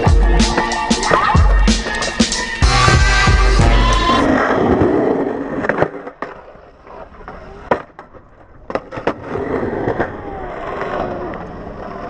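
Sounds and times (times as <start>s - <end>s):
skateboard wheels rolling on concrete: 0.0s - 12.0s
skateboard clacking on concrete: 5.6s - 12.0s.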